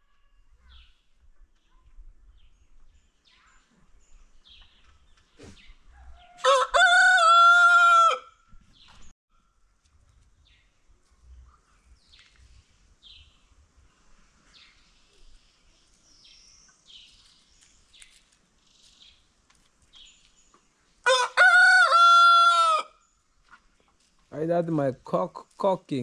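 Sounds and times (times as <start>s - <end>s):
rooster crowing: 5.9s - 8.4s, 21.0s - 23.0s.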